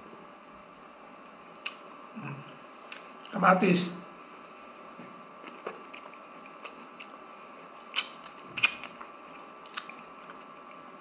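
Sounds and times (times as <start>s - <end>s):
faint steady hum: 0.0s - 11.0s
chewing smacks and clicks: 5.4s - 7.2s, 7.9s - 10.8s.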